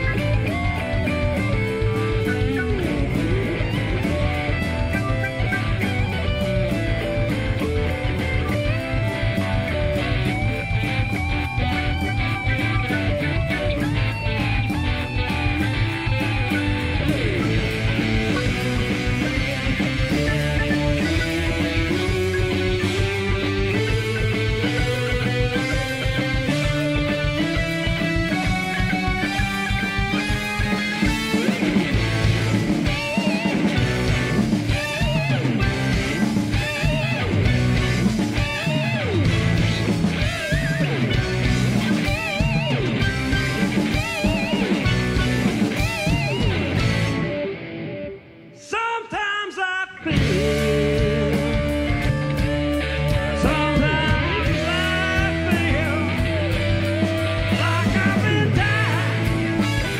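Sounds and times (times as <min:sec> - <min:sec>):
lead guitar lick with vibrato: 0:00.0 - 0:49.0, 0:49.9 - 0:59.9
live rock band: 0:00.0 - 0:59.9
lead singer singing: 0:48.6 - 0:59.9.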